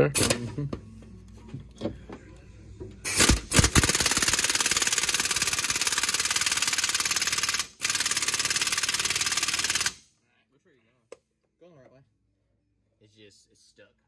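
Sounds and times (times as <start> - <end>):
impact wrench hammering: 3.1 - 10.0.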